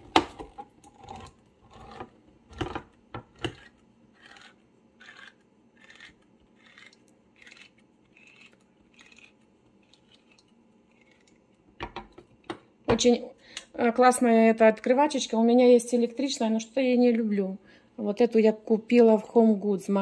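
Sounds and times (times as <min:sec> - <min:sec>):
can opener clicking and scraping: 0:00.2 - 0:12.2.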